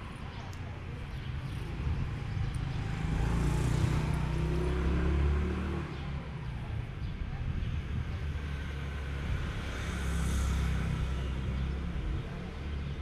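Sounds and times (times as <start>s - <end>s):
motor scooter engine passing: 2.7s - 6.2s.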